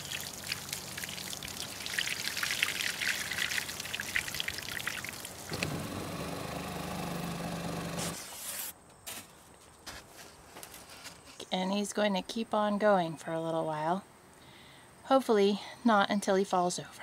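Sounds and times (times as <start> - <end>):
pitched running water: 0.0 - 5.8.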